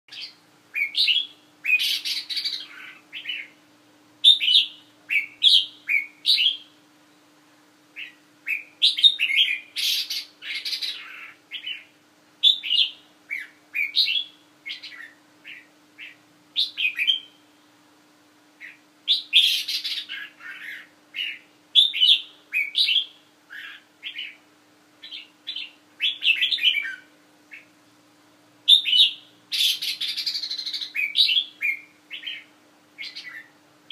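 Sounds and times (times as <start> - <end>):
bird singing warbled phrases: 0.1 - 3.6, 4.2 - 7.2, 7.9 - 17.5, 18.6 - 27.8, 28.6 - 33.9.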